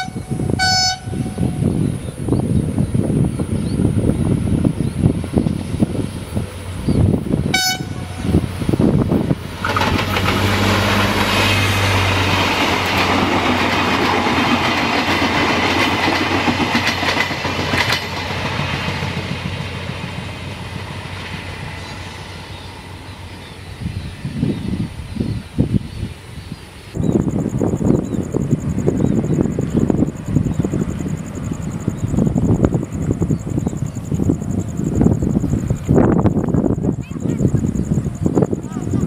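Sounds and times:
train horn blast: 0:00.0 - 0:01.8, 0:07.5 - 0:08.4
train passing with wheel clatter: 0:00.0 - 0:39.0.

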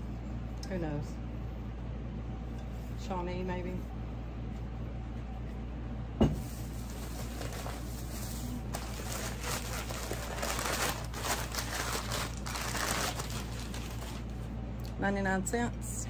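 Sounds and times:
air conditioner and fans humming: 0:00.0 - 0:16.0
wrapping rustling and crinkling: 0:06.4 - 0:14.5.

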